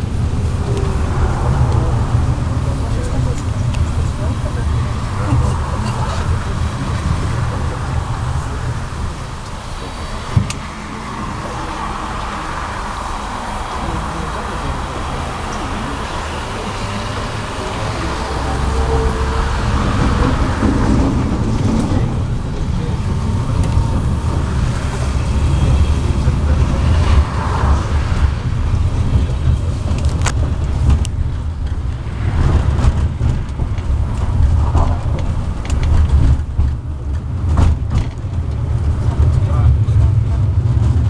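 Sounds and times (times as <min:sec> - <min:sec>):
tram wheels rumbling: 0:00.0 - 0:41.0
sharp clicks and knocks: 0:10.3 - 0:10.7, 0:29.1 - 0:41.0.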